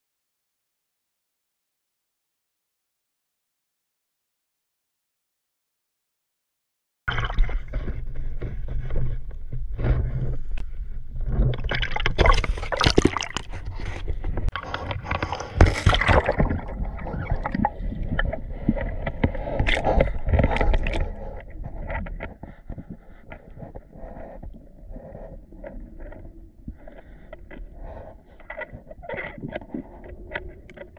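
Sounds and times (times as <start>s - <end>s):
water sloshing and splashing: 7.1s - 9.2s, 9.8s - 30.9s.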